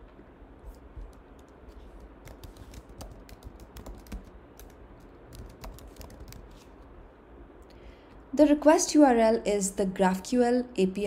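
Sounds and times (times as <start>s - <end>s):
keyboard typing: 1.0s - 6.7s.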